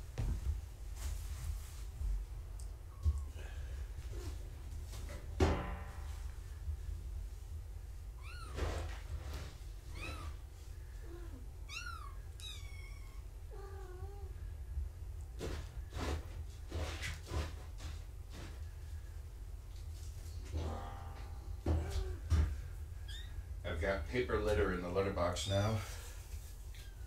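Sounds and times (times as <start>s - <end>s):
soft thumps: 0.0s - 1.2s
steady low hum: 0.0s - 27.0s
kittens mewing: 11.0s - 14.3s.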